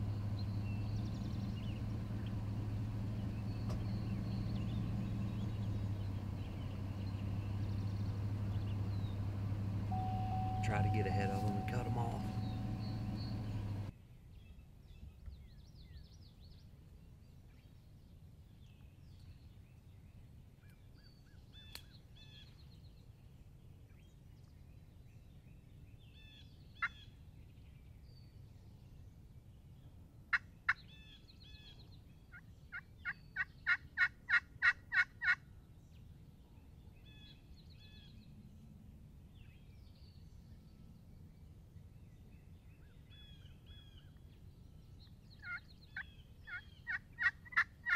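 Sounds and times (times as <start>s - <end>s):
songbirds chirping: 0.0s - 47.9s
turkey yelping: 33.4s - 35.4s, 46.5s - 47.9s.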